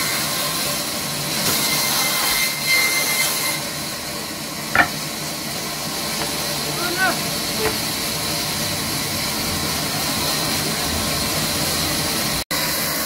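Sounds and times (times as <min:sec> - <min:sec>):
sharp knock: 0:04.8 - 0:05.0.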